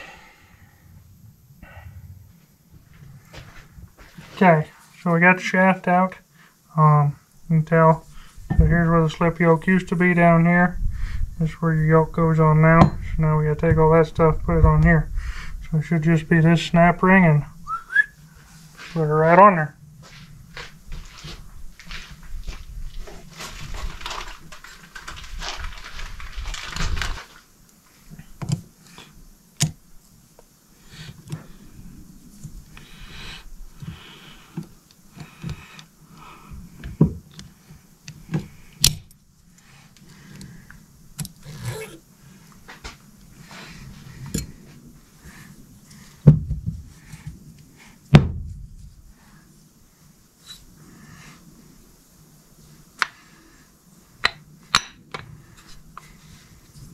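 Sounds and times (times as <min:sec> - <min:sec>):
scraping and rustling: 0:20.0 - 0:29.2.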